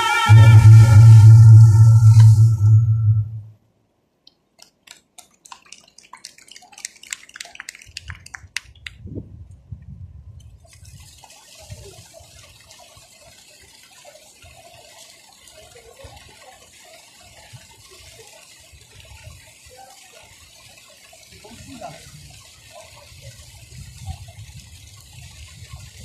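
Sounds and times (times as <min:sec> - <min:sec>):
fountain jets spraying and splashing: 0:00.0 - 0:01.6, 0:04.6 - 0:09.0, 0:10.4 - 0:26.0
water drips and spatters: 0:04.3 - 0:09.0, 0:10.4 - 0:26.0.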